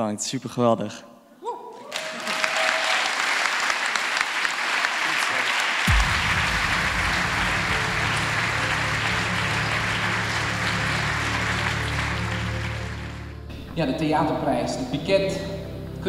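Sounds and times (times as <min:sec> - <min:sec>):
audience applauding: 0:01.8 - 0:13.5
music with low bass: 0:05.9 - 0:13.6.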